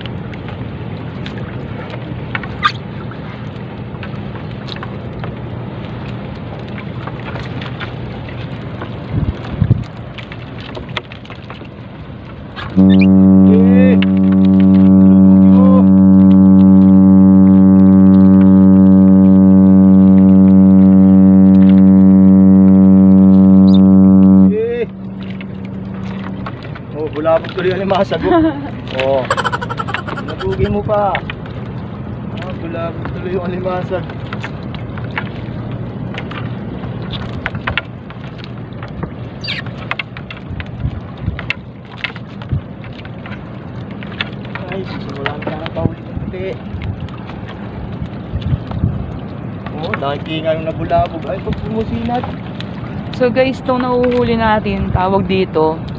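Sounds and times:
small crackles and splashes: 0.0 - 22.3, 24.5 - 55.9
brief high squeak: 2.6 - 2.8, 12.9 - 13.1, 29.3 - 30.7, 39.4 - 39.6
loud low buzzing hum: 12.7 - 30.7.

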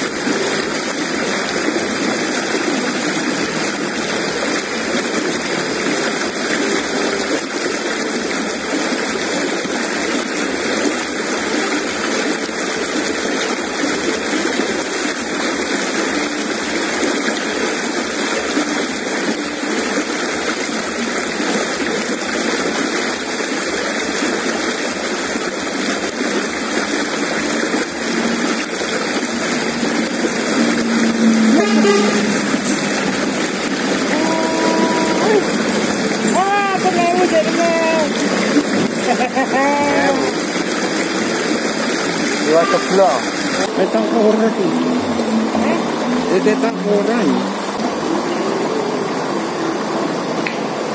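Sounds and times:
river rushing over rocks: 0.0 - 50.9
low hum: 27.3 - 50.9.

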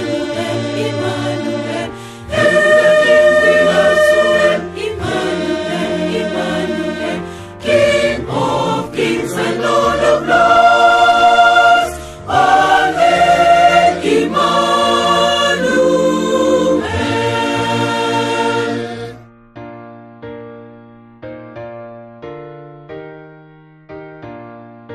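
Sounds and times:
mixed choir singing a hymn: 0.0 - 19.3.

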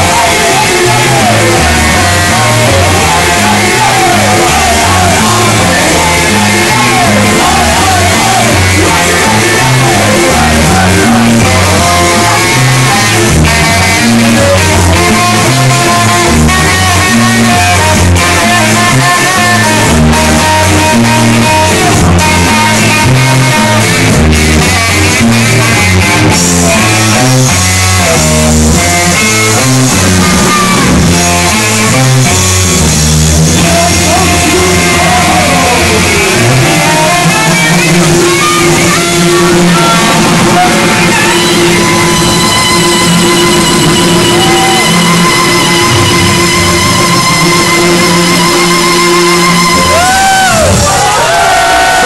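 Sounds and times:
bass and electric guitar riff: 0.0 - 52.0
live band playing loudly: 0.0 - 52.0.

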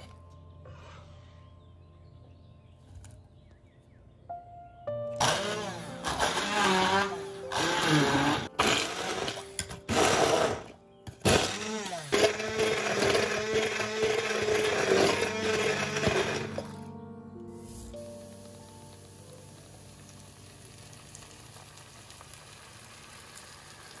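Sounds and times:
immersion blender motor: 5.2 - 16.8.

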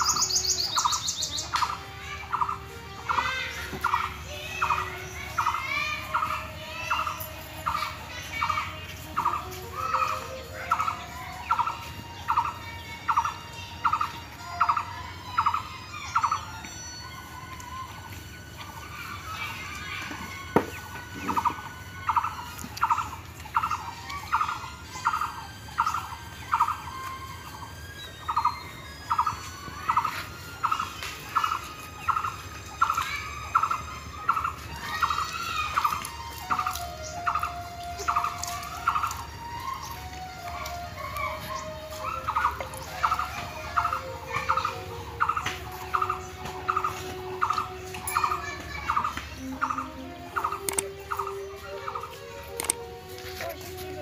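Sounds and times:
bird calling rapidly: 21.3 - 52.8.

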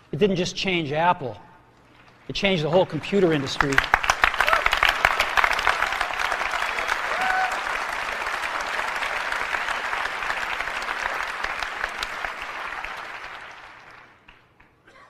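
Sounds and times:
audience applauding: 1.9 - 14.8.

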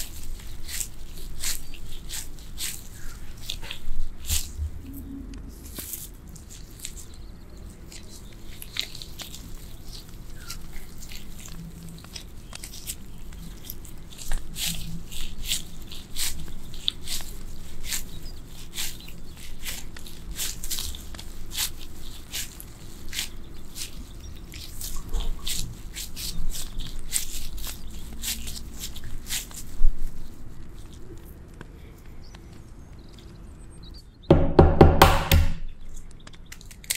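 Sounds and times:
gloved hands shaping rice ball: 0.0 - 33.4, 34.6 - 36.9.

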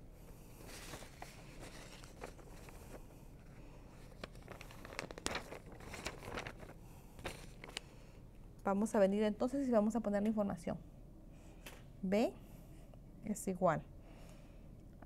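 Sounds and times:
paper rustling and crinkling: 0.6 - 7.9.

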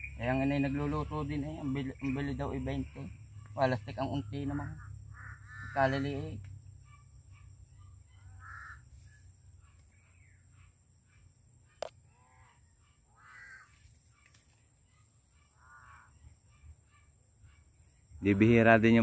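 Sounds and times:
crows cawing: 0.0 - 7.5, 8.1 - 10.4, 12.1 - 13.8, 15.4 - 16.3.

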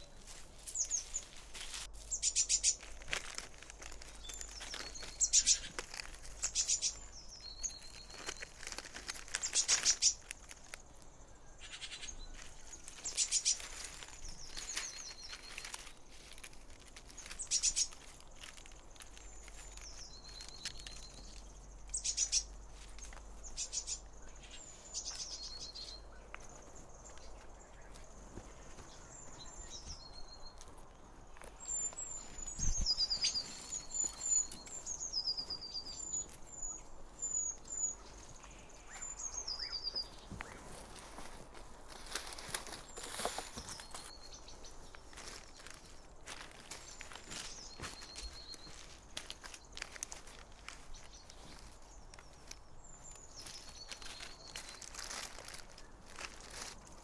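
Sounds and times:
rapid high bird trills: 2.1 - 2.8, 4.2 - 8.6, 11.5 - 13.8, 23.4 - 26.1.

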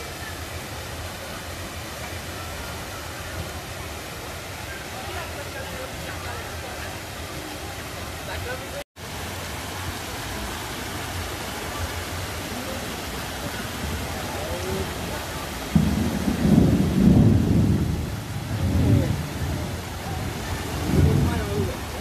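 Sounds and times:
heavy rain: 0.0 - 22.0
water rushing over rocks: 0.0 - 22.0
thunder rumbling: 15.7 - 22.0.

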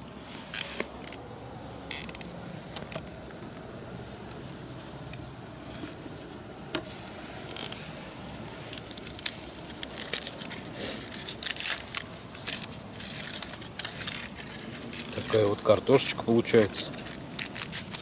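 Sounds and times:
aluminium foil crinkling: 0.0 - 18.0.

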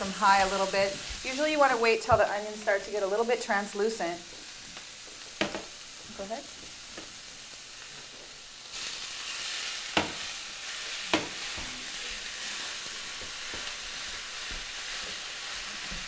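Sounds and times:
meat sizzling in skillet: 0.0 - 16.0
utensil clacking on skillet: 5.0 - 5.7, 9.9 - 10.3, 11.1 - 11.8, 13.1 - 15.3.

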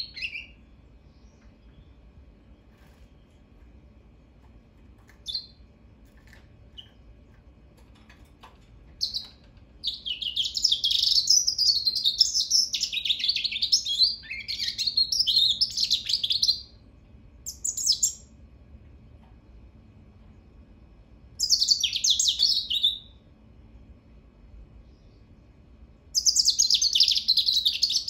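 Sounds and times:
bird chirp: 0.0 - 3.4, 5.1 - 5.7, 6.3 - 7.0, 8.9 - 16.8, 17.4 - 18.3, 21.4 - 23.2, 26.1 - 28.0
bird song of rapid high notes: 0.0 - 3.5, 5.1 - 5.7, 6.7 - 7.1, 8.9 - 16.8, 17.4 - 18.4, 21.4 - 23.2, 26.1 - 28.0.

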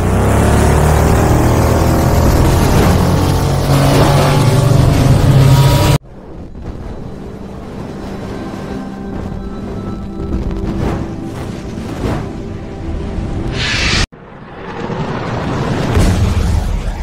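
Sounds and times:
futuristic motorcycle engine revving: 0.0 - 6.0.

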